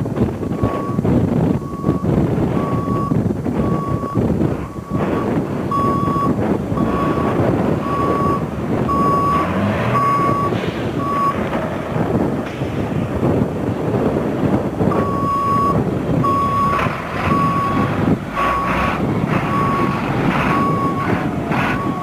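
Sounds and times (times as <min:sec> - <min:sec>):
truck engine rumble: 0:00.0 - 0:22.0
truck backup alarm beeping: 0:00.1 - 0:12.4, 0:13.2 - 0:22.0.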